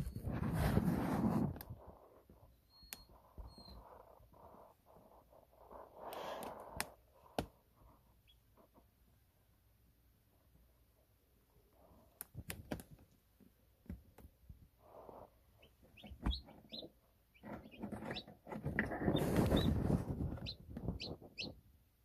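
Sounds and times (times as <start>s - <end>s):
rustling scrape: 0.0s - 2.0s, 17.4s - 21.2s
chick peeping: 15.0s - 21.6s.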